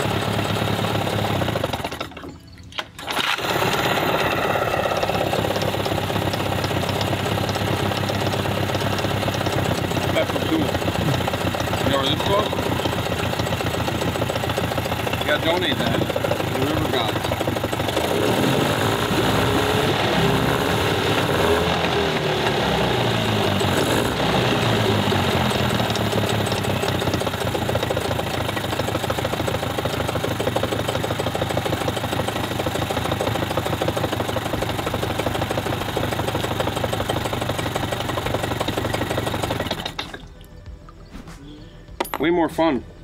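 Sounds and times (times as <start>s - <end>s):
outboard motor revving: 0.0s - 2.3s, 3.0s - 40.3s.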